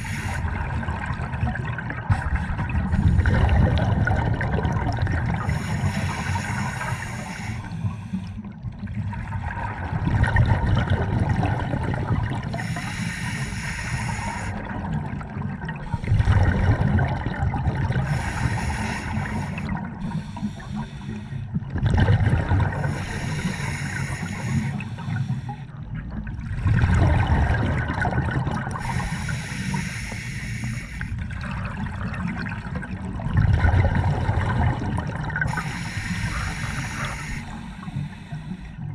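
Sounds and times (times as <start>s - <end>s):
scuba regulator hiss: 0.0s - 0.4s, 5.4s - 8.1s, 12.6s - 14.6s, 18.1s - 21.3s, 22.9s - 25.6s, 28.8s - 31.1s, 35.5s - 38.6s
exhaled bubbles rushing: 0.0s - 12.8s, 14.0s - 29.2s, 31.1s - 38.9s.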